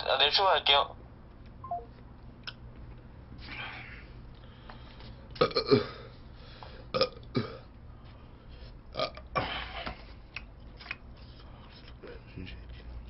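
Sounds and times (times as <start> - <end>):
man eating mouth noises: 5.3 - 5.8.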